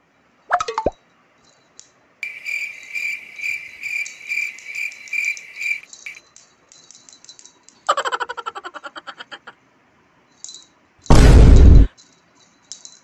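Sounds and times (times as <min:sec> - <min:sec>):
cricket chirping: 0:02.2 - 0:06.3.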